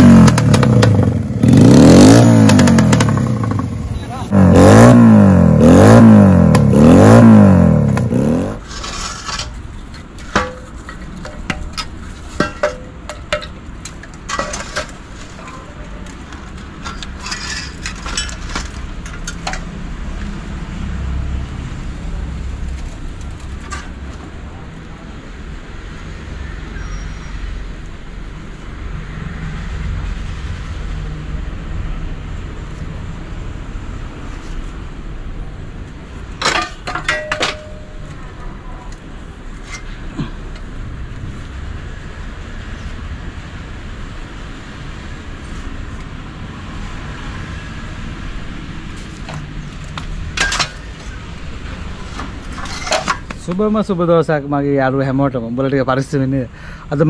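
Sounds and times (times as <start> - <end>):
motorcycle engine revving: 0.0 - 8.7
scrap metal clinking: 8.6 - 15.6, 16.8 - 19.7, 36.4 - 38.2, 50.3 - 51.2, 52.0 - 53.4.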